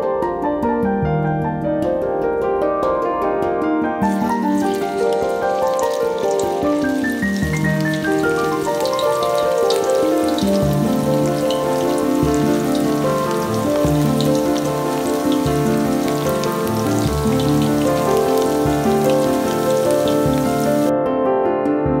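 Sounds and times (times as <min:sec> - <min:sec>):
background music sustained notes: 0:00.0 - 0:22.0
banana slices deep-frying in oil: 0:04.0 - 0:20.9.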